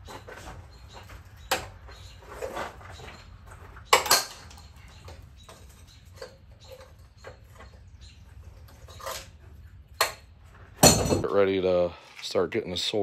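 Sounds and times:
metal tool clanking on steel: 10.8 - 11.3.

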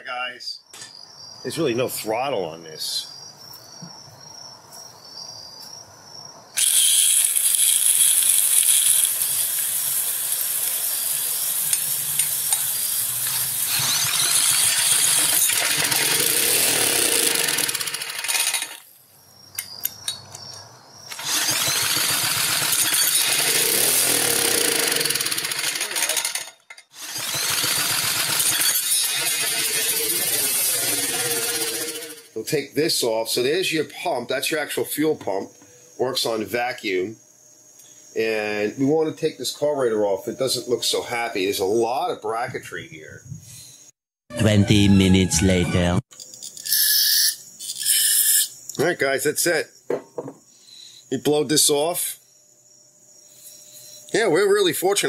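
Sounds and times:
small gasoline engine running: 6.6 - 18.8, 21.1 - 26.4, 27.0 - 32.3.

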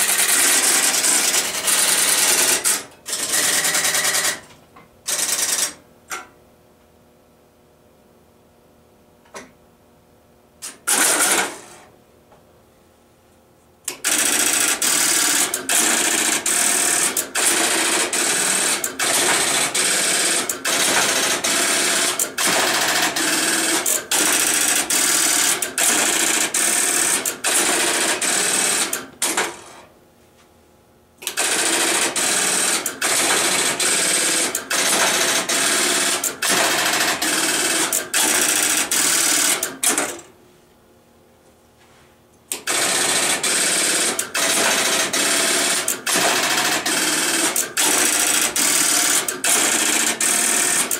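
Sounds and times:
sharp relay clicks: 13.9 - 19.8, 31.2 - 40.3, 42.5 - 50.9.

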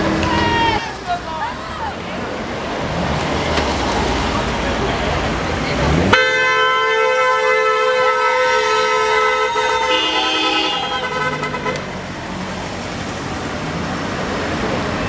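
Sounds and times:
onlookers whooping: 0.0 - 1.0, 8.5 - 11.4
car horn long blast: 6.0 - 12.0
second horn tone: 6.1 - 12.0.

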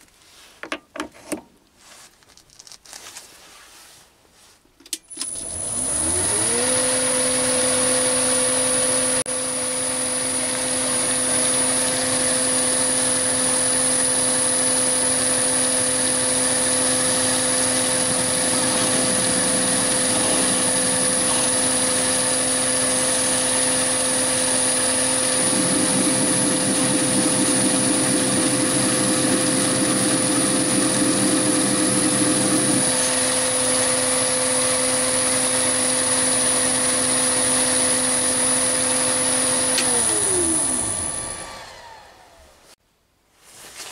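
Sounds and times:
lathe motor hum and whine: 5.2 - 42.5
rough fluttering buzz: 17.7 - 22.3.

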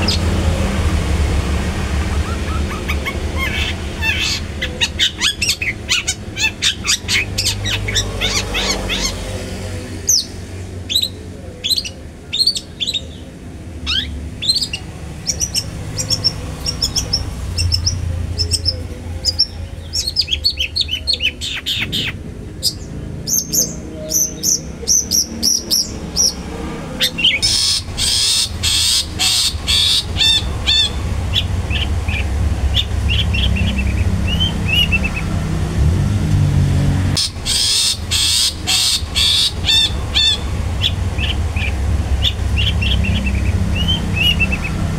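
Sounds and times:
harsh rasping bird calls: 0.0 - 35.6, 37.2 - 44.9
shrike chirping: 1.6 - 9.2.

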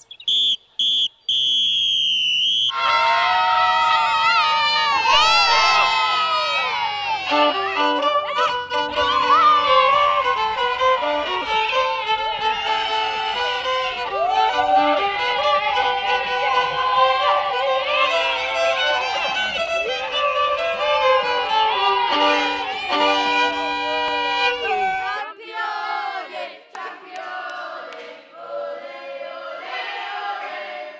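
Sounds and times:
violin music with backing: 7.2 - 25.1.

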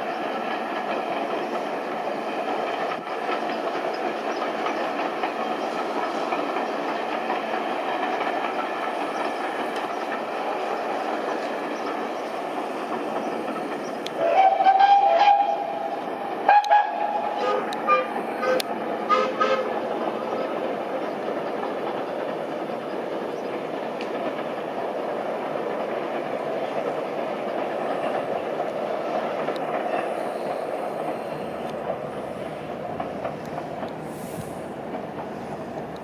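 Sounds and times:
steam train wheels rumbling: 0.0 - 36.0
steam whistle: 14.2 - 19.8.

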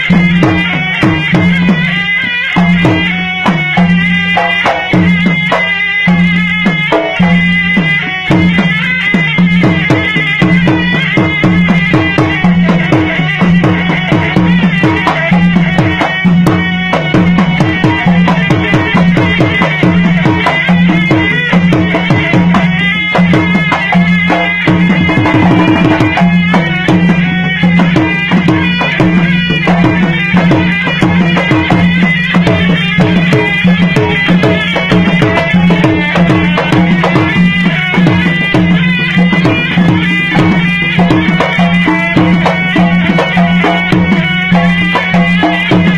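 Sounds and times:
fast drum beats: 0.0 - 45.9
reed pipe melody: 0.0 - 45.9.

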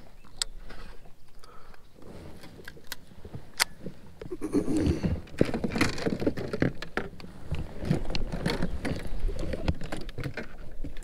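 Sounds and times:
fishing rods clicking and knocking: 2.4 - 11.0.

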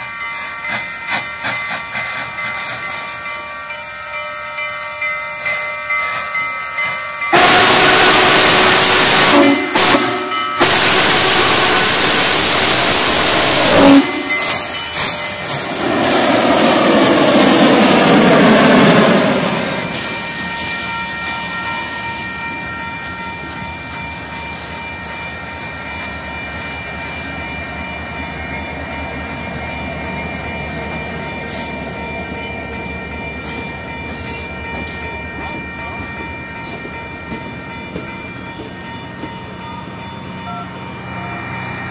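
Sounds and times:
steam locomotive whistle: 7.3 - 14.7
steam hiss: 7.4 - 22.2.

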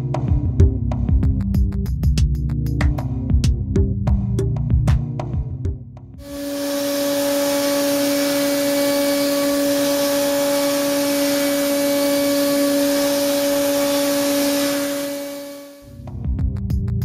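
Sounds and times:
cutting hiss: 6.2 - 15.8
milling spindle hum: 6.2 - 15.8.

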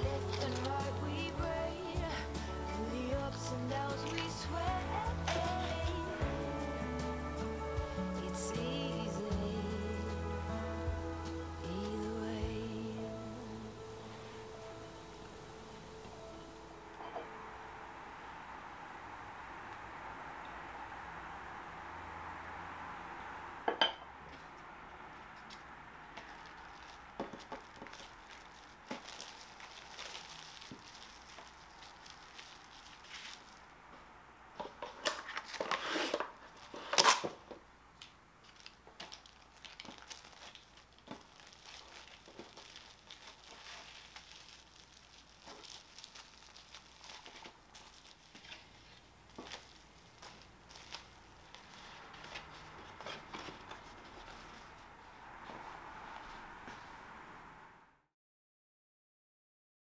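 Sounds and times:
cling film tearing: 0.0 - 1.6, 3.6 - 7.7, 26.2 - 33.7, 34.9 - 37.4, 38.4 - 53.9
plastic film crinkling: 0.0 - 16.2, 25.4 - 33.8, 34.6 - 54.9.

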